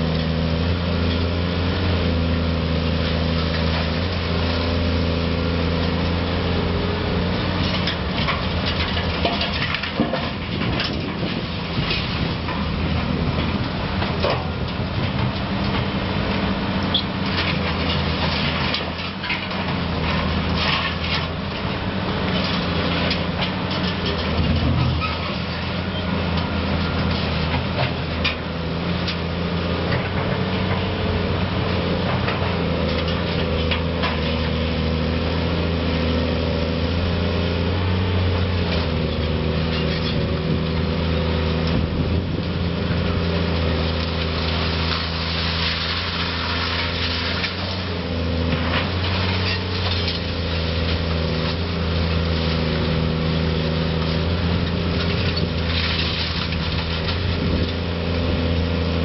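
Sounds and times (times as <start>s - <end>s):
excavator diesel engine running: 0.0s - 59.0s
concrete rubble clattering: 7.5s - 15.9s, 16.9s - 28.5s, 43.1s - 52.8s, 53.6s - 58.6s.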